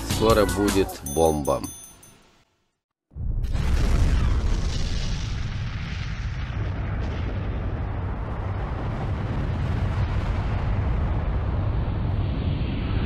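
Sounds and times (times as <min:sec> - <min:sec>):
explosion low rumble with hiss: 0:03.1 - 0:13.0.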